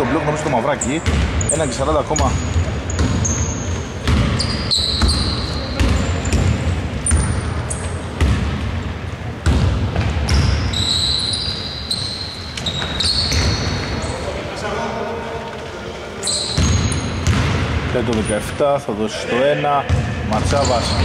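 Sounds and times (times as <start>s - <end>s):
sneakers squeaking on floor: 0.4s - 18.6s, 19.9s - 21.0s
basketball bouncing: 1.0s - 1.5s, 2.1s - 10.7s, 16.5s - 18.3s.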